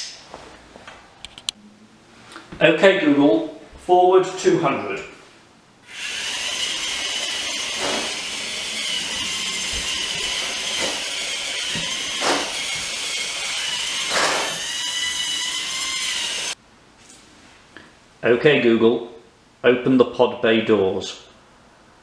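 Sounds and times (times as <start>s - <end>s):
high-pitched motor whine: 5.9s - 16.6s.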